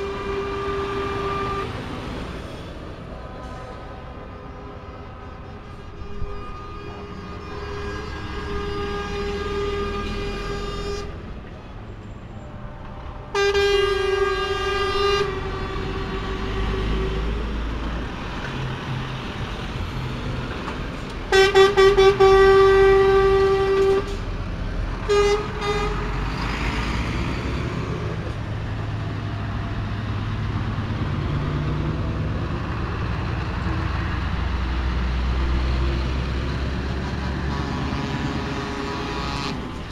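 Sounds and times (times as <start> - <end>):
truck horns blasting: 0.0 - 11.5, 12.2 - 29.1, 32.5 - 39.9
diesel truck engines rumbling: 0.0 - 39.9
road noise: 0.0 - 39.9.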